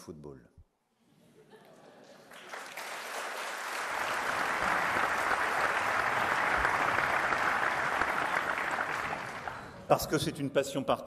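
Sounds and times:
large audience applauding: 2.1s - 9.9s.

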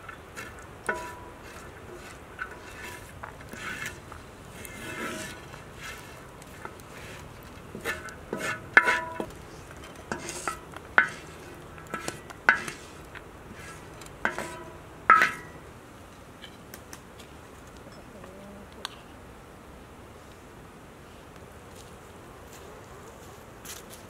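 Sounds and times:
spatula scraping iron griddle: 0.0s - 15.7s.

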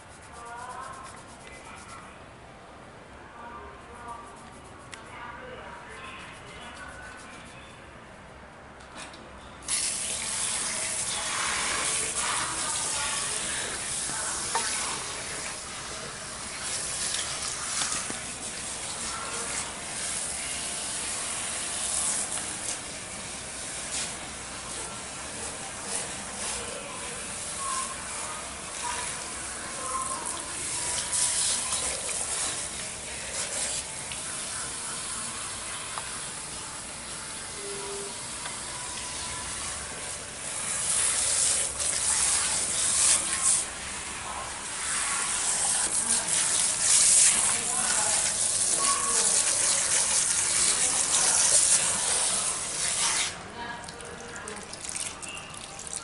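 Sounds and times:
shower sprayer hissing water: 9.7s - 53.4s.

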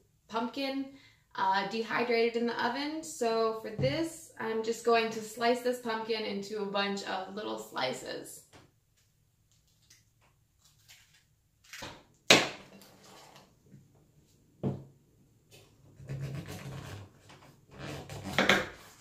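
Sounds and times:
knife scraping and rubbing: 16.0s - 19.0s.

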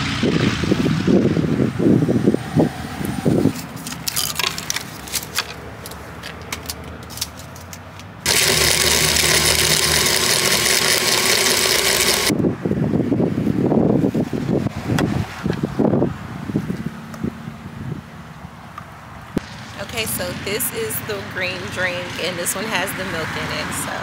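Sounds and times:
blender motor running: 8.3s - 12.3s.

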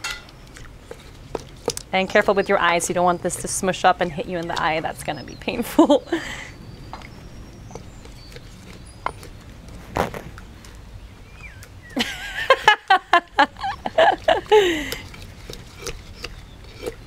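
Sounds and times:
woman laughing: 5.5s - 6.6s, 12.0s - 15.0s.

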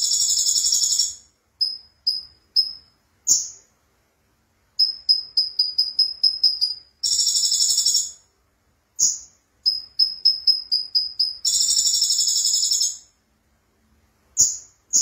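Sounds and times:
sunbird singing: 4.8s - 8.1s, 9.0s - 13.0s.

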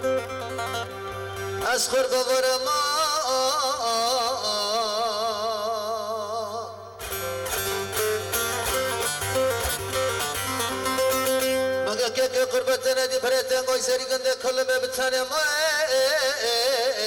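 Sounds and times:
plucked lute: 0.0s - 14.5s.

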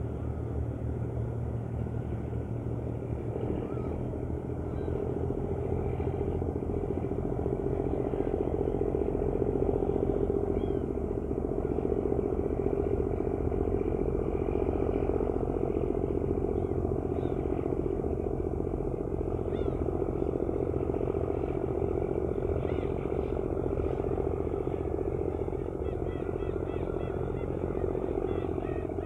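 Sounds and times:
ferry engine drone: 0.0s - 29.0s
faint gull cries: 3.4s - 6.4s, 10.3s - 11.0s, 15.8s - 18.0s, 19.3s - 29.0s.

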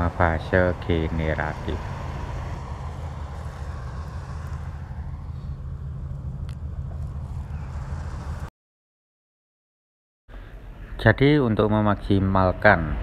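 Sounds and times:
low rumble: 0.0s - 8.5s.

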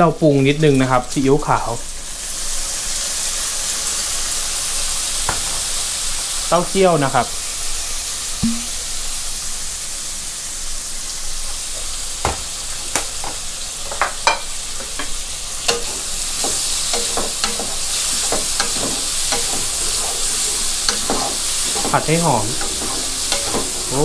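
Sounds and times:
food sizzling in oil: 0.0s - 24.0s
wooden spatula scraping wok: 13.2s - 24.0s.

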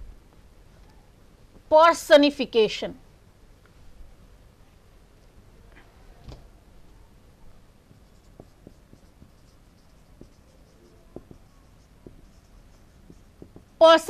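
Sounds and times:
marker squeaking on whiteboard: 7.9s - 14.0s.

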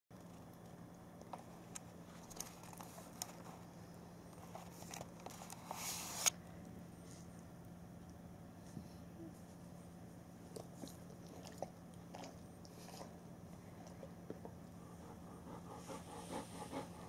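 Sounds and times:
light clicks and rustles: 0.2s - 6.3s
faint steady hum: 0.2s - 17.0s.

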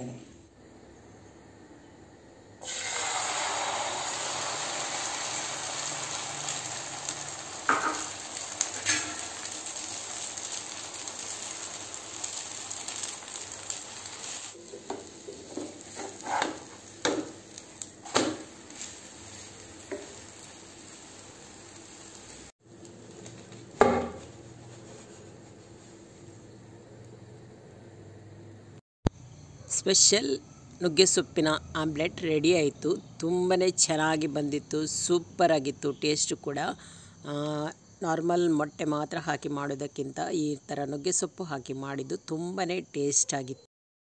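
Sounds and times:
batter sizzling in a frying pan: 2.6s - 26.6s
metal spoon scraping a pan: 8.8s - 9.2s, 14.9s - 17.2s.

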